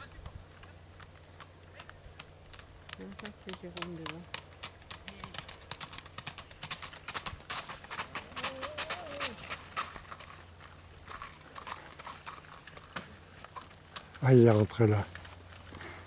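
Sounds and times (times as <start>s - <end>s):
horse hooves on pavement: 0.0s - 16.0s
faint rising and falling call: 8.2s - 9.6s.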